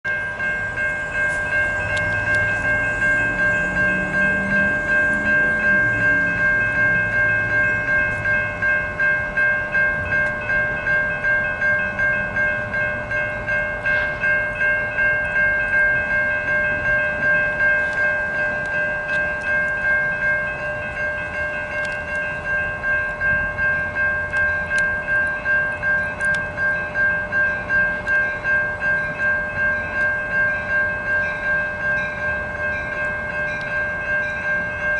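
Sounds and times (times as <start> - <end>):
railroad crossing bells ringing: 0.0 - 34.9.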